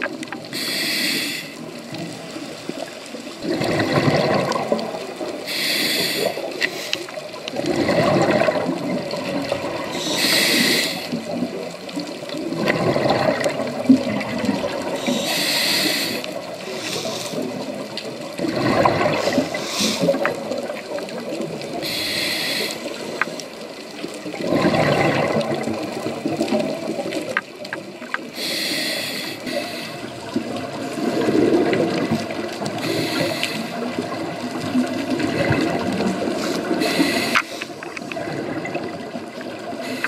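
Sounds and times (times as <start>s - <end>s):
regulator inhale hiss: 0.5s - 1.6s, 5.4s - 7.2s, 9.9s - 11.3s, 15.0s - 17.6s, 19.2s - 20.2s, 21.8s - 23.2s, 28.4s - 30.1s, 32.8s - 33.9s, 36.4s - 37.8s, 39.8s - 40.0s
bubbling exhale underwater: 3.4s - 6.5s, 7.4s - 11.7s, 12.3s - 22.2s, 24.2s - 27.4s, 29.6s - 40.0s.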